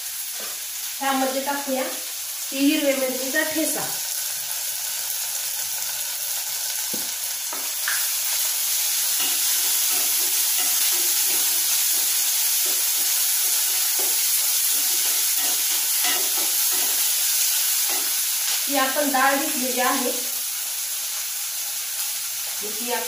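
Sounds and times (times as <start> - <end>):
paste sizzling in hot oil: 0.0 - 23.0.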